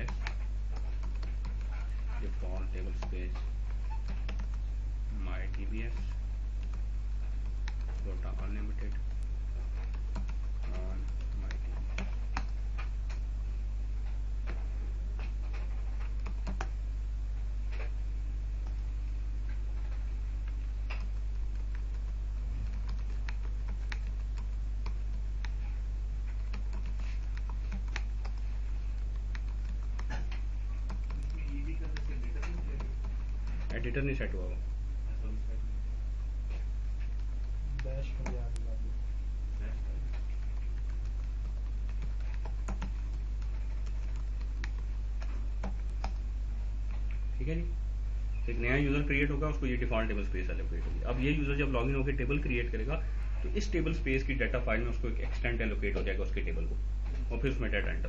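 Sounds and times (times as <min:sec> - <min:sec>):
typing on computer keyboard: 0:00.0 - 0:04.6, 0:05.4 - 0:13.2, 0:15.6 - 0:16.7, 0:20.9 - 0:25.7, 0:26.3 - 0:33.8, 0:40.2 - 0:46.2
low electrical hum: 0:00.0 - 0:58.0.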